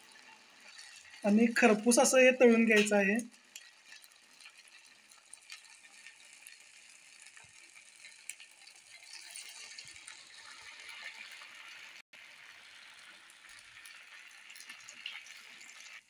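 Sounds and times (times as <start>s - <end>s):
food sizzling in hot oil: 0.0s - 16.0s
oil crackling: 0.0s - 16.0s.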